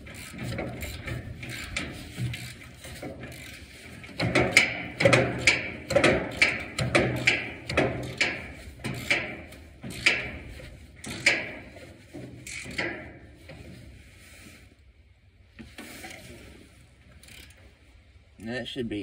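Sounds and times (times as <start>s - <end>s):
hand tools clicking on metal: 4.2s - 10.3s, 11.0s - 11.6s
faint handling noise: 8.2s - 18.0s.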